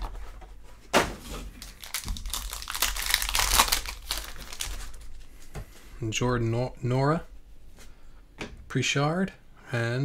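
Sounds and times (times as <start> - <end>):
foil pack crinkling and tearing: 1.5 - 5.3.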